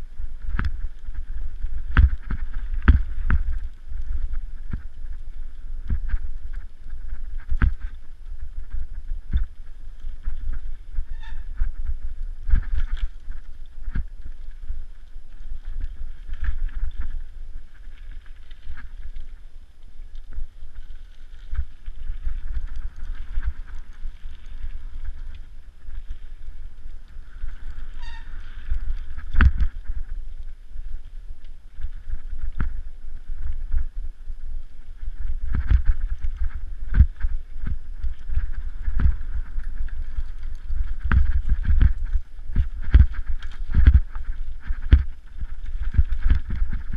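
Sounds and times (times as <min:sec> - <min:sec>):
wind rumble on microphone: 0:00.0 - 0:46.9
bike knocking and rattling: 0:00.4 - 0:17.6, 0:35.4 - 0:46.9.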